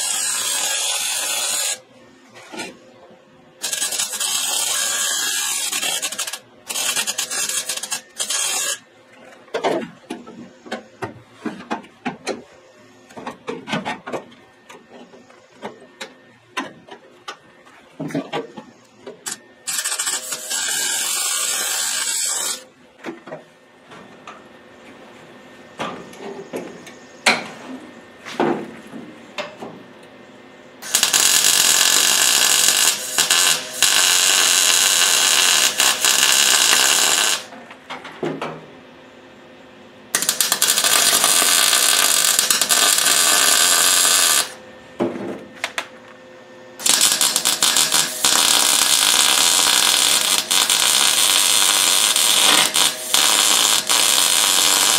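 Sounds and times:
welding arc sizzling: 0.0s - 1.9s, 3.6s - 8.8s, 19.2s - 22.7s, 30.8s - 37.5s, 40.1s - 44.6s, 46.8s - 54.9s.

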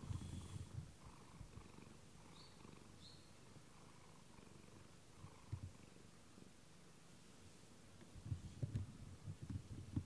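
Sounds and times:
cat purring: 0.0s - 6.2s.

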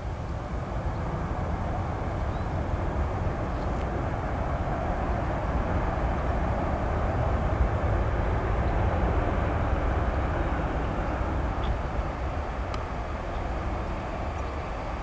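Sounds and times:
jet engines rumbling: 0.0s - 15.0s.

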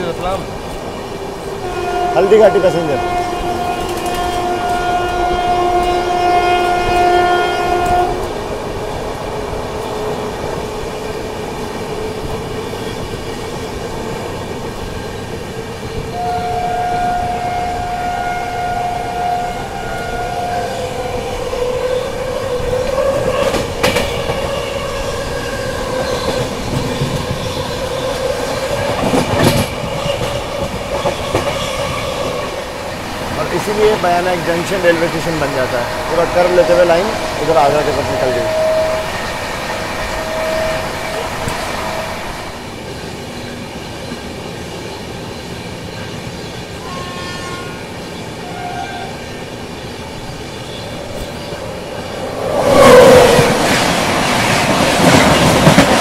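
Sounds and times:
train rumbling on track: 0.0s - 56.0s
locomotive horn blast: 1.6s - 8.3s, 16.2s - 20.7s, 46.8s - 49.2s.

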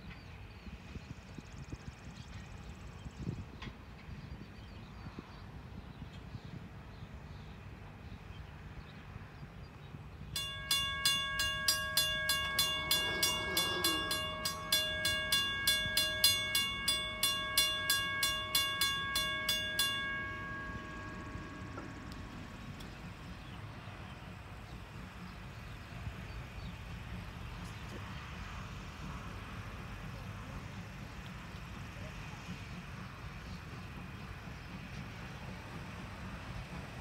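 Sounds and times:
crossing warning bell ringing: 10.4s - 28.4s.

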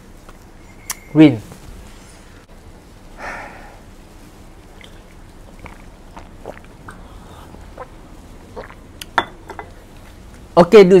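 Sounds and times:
person chewing: 4.7s - 10.1s
person sipping from cup: 4.8s - 9.2s.

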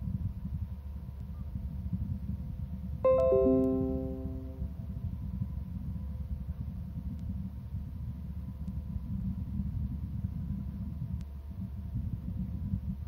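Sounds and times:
piano chord ringing: 3.1s - 4.8s
faint steady hum tone: 3.1s - 4.9s.

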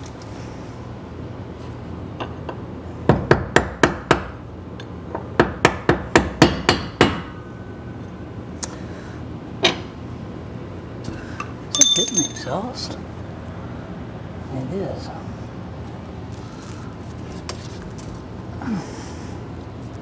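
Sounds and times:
hammer striking metal: 11.7s - 12.5s.

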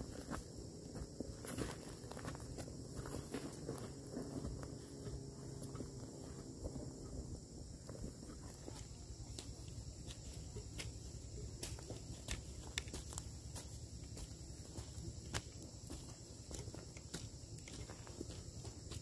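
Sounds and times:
footsteps on dry soil: 0.0s - 19.0s
high insect buzz: 0.0s - 19.0s
sticks tapping into ground: 11.6s - 13.4s.

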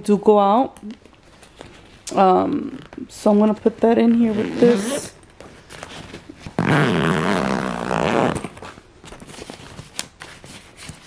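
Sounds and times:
fabric rustling: 1.1s - 11.0s
suitcase zipper zipping: 4.3s - 5.1s, 6.5s - 8.7s.

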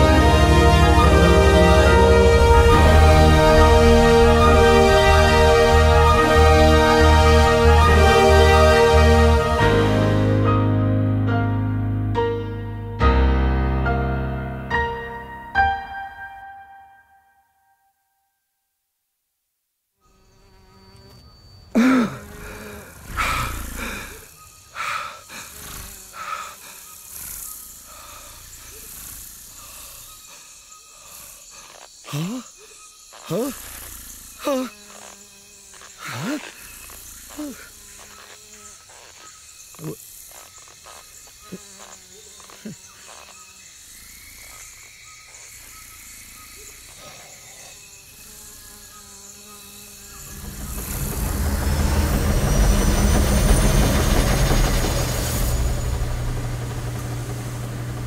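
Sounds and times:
insect buzzing: 0.0s - 12.0s, 20.0s - 58.0s
loud animal calls: 21.8s - 28.7s
creature chirps and trills: 31.6s - 33.8s, 34.4s - 35.2s, 35.8s - 38.2s, 39.8s - 40.0s.

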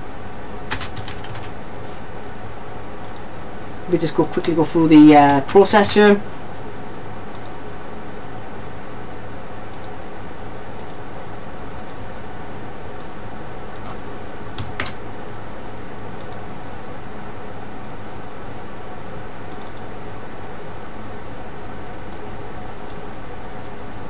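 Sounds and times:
computer clicks: 3.0s - 3.3s, 7.3s - 7.6s, 9.7s - 10.0s, 10.8s - 11.0s, 11.8s - 12.0s, 16.2s - 16.4s, 19.5s - 19.9s.

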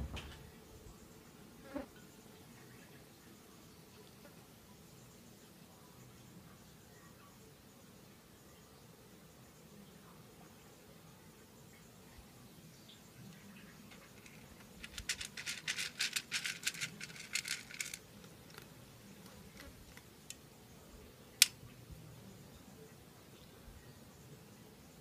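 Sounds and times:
cat crunching dry kibble: 14.0s - 18.7s.

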